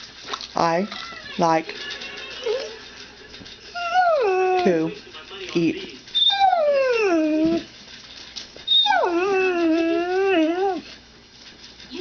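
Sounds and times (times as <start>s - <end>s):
dog howling: 3.7s - 4.9s, 6.2s - 7.7s, 8.7s - 10.9s.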